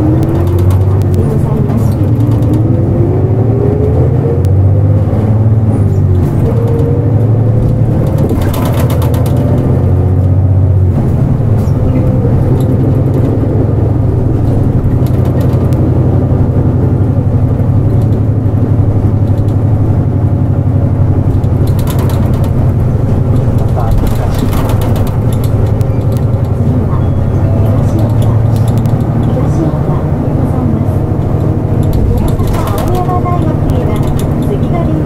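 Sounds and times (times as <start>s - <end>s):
bus diesel engine drone: 0.0s - 35.0s
rising engine whine: 0.0s - 35.0s.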